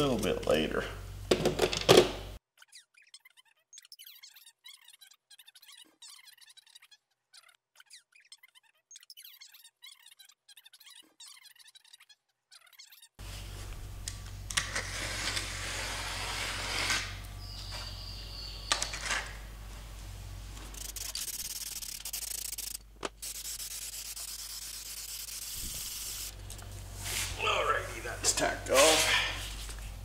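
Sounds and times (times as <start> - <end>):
aerosol can hissing: 20.7 - 26.3.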